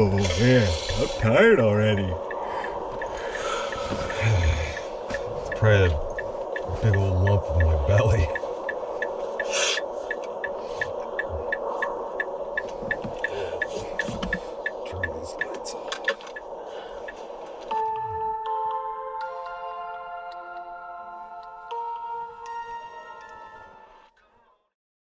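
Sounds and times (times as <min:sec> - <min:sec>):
light regular ticking: 0:00.0 - 0:17.8
steady hum: 0:00.0 - 0:18.3
chiming music tones: 0:17.7 - 0:24.1.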